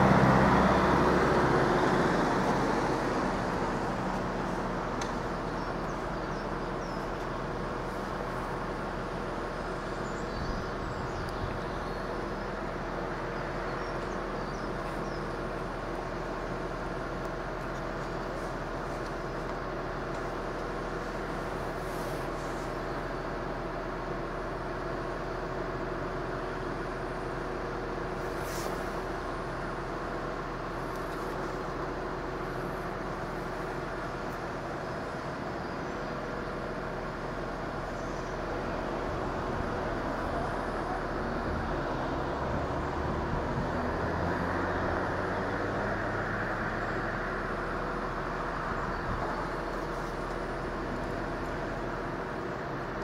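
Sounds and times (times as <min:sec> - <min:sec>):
diesel vehicle engine running: 0:00.0 - 0:53.0
short hiss: 0:28.3 - 0:29.0.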